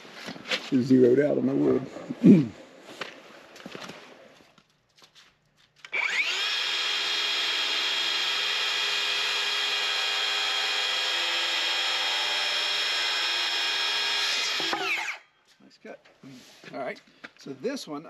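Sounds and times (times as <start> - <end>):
circular saw cutting wood: 5.9 - 15.3.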